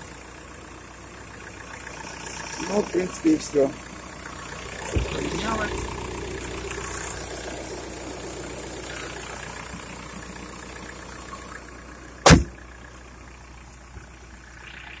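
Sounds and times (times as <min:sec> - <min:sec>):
diesel engine idling: 0:00.0 - 0:15.0
car bonnet slamming: 0:12.2 - 0:12.6.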